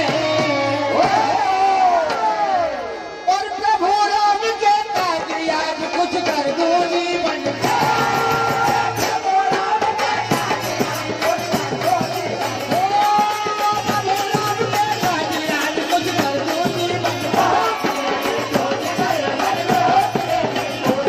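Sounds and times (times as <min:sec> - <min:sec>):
hand drums beating: 0:05.0 - 0:21.0.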